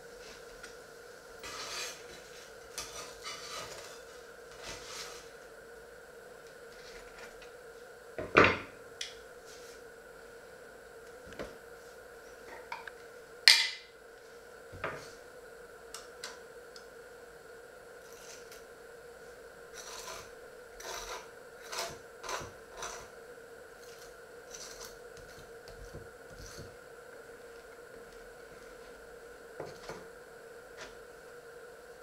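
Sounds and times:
knife scraping bread: 1.4 - 5.3, 18.1 - 18.6, 19.7 - 23.2, 23.8 - 26.8.

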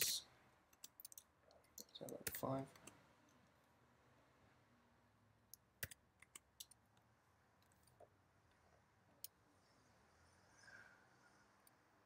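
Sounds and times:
keyboard and mouse clicks: 0.7 - 3.0, 5.5 - 8.1.

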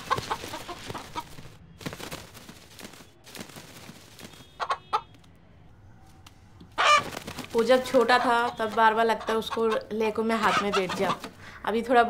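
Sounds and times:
rooster flapping wings: 0.0 - 5.2, 6.8 - 8.7.

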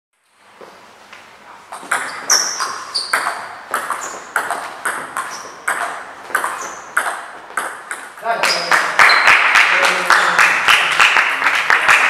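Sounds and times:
table tennis ball clicking: 1.8 - 8.7.

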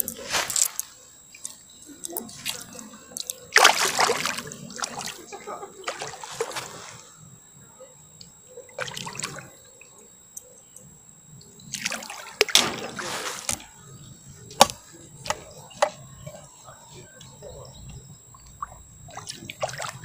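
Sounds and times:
fish splashing at water surface: 3.5 - 7.0, 8.8 - 9.5, 11.7 - 13.6, 18.6 - 20.0.

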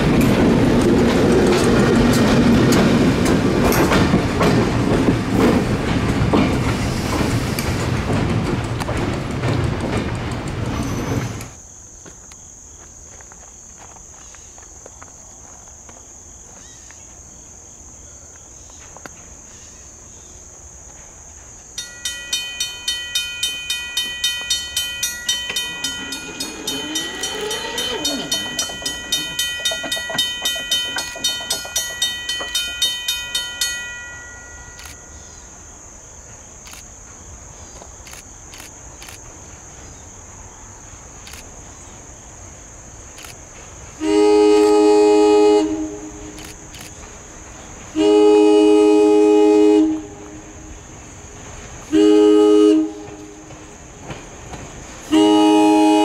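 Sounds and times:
passing train low tones: 0.0 - 11.6, 20.6 - 56.0
crickets droning: 0.0 - 56.0
railroad bell clanging: 21.8 - 35.9.

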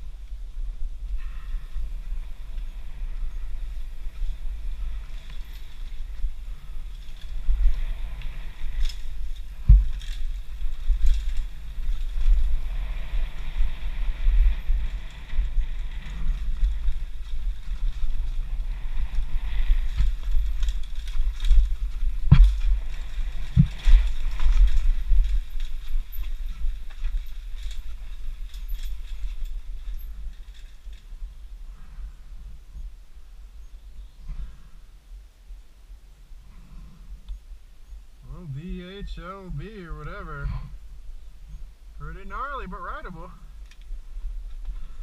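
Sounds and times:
low rumble of bike ride: 0.0 - 45.0
bike knocking over bumps: 9.5 - 11.9, 20.0 - 25.5.

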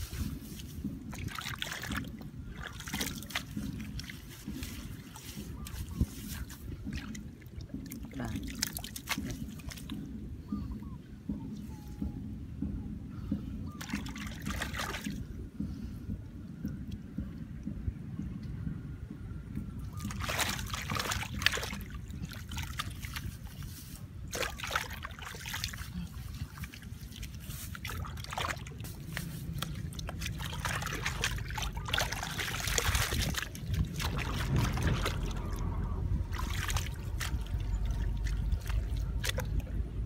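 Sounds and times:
hands splashing wet mud: 0.0 - 9.9, 13.8 - 15.2, 19.9 - 39.8.

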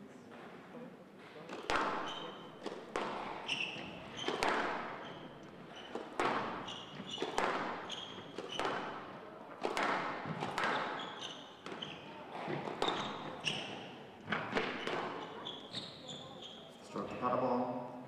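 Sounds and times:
shoes squeaking on court floor: 1.4 - 17.2
squash ball hits ringing: 5.8 - 11.9.

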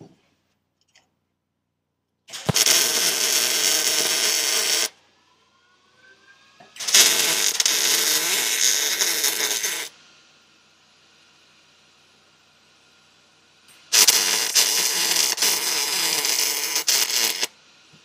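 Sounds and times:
arc welding crackling: 2.3 - 5.0, 6.8 - 9.9, 13.7 - 17.6.

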